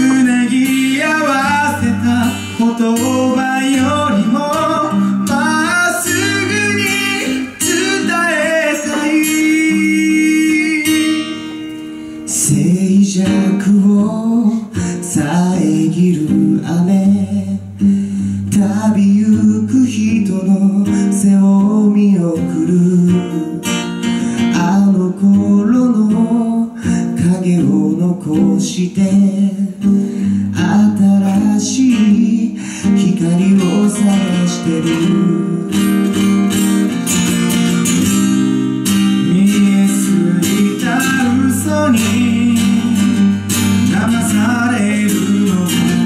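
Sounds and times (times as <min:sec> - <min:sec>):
second man singing: 0:00.0 - 0:11.6, 0:39.2 - 0:46.0
man singing: 0:00.0 - 0:36.6, 0:38.8 - 0:46.0
acoustic guitar strumming: 0:00.0 - 0:46.0.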